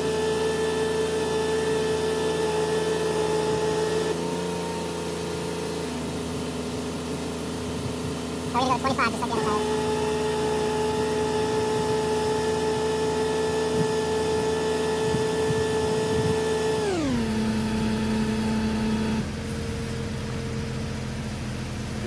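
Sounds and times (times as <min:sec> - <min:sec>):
engine running: 0:00.0 - 0:22.0
air compressor whining: 0:08.5 - 0:20.2.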